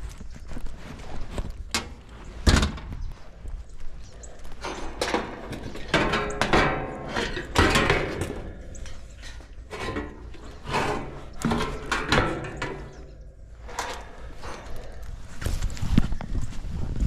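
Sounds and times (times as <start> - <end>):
sheet metal clanking and rattling: 4.6 - 15.0.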